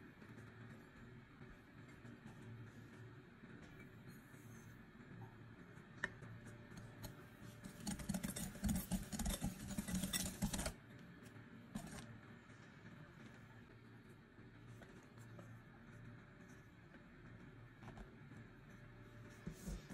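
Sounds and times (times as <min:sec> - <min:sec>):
whisk clicking against glass bowl: 0:07.6 - 0:10.8.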